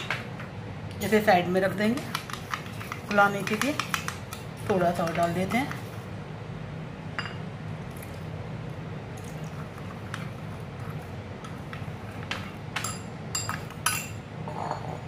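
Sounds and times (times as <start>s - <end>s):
spoon scraping and clinking glass bowl: 12.8s - 15.0s.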